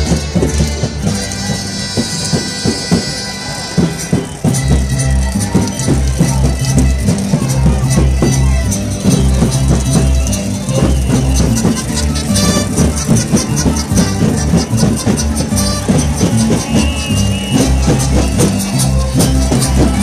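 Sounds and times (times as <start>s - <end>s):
music with steady beat: 0.0s - 20.0s
shaker percussion: 0.0s - 20.0s
bass line: 4.4s - 20.0s.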